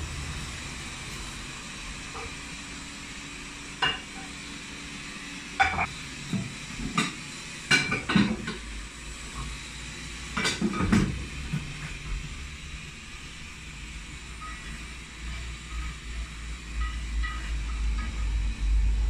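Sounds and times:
dishes and utensils clattering: 6.9 - 8.6.

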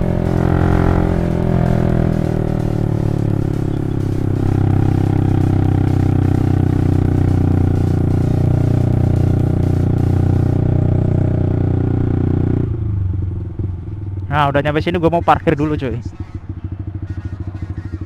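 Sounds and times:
motorcycle engine pulling under load: 0.0 - 11.0.

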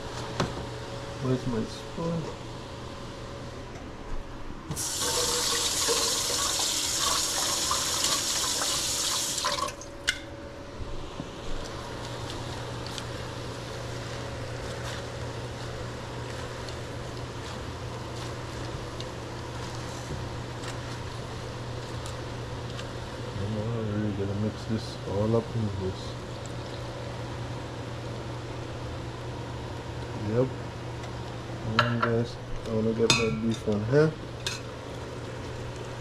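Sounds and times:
steady low hum: 0.0 - 6.6, 9.7 - 36.0
kitchen tap running: 4.8 - 9.9.

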